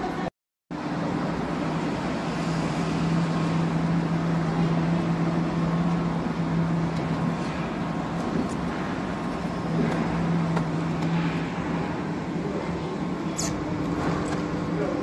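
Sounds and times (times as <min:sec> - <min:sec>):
machine low hum: 0:00.0 - 0:15.0.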